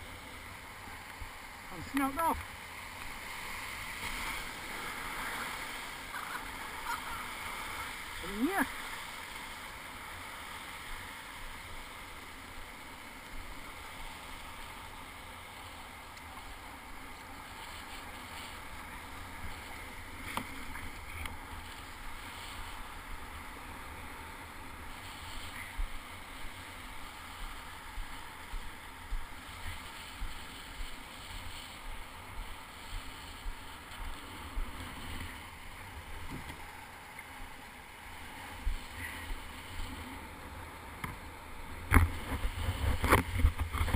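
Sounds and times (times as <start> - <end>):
water washing around kayak: 0.0 - 43.9
paddle splashes: 0.1 - 22.9
wind rumble on microphone: 37.4 - 43.9.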